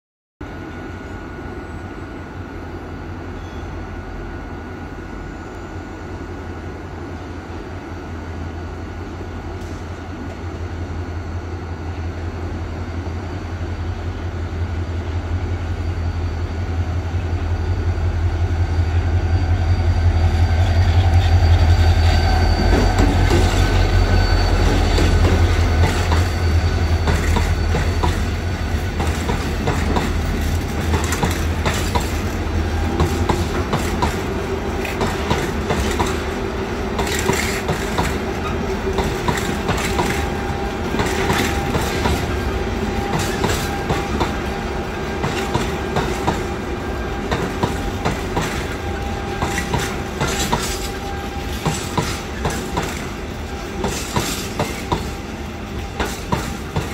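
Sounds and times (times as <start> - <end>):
locomotive rumbling: 13.8 - 56.9
thin wheel squeal: 18.0 - 28.4
train wheels clattering: 20.8 - 56.9.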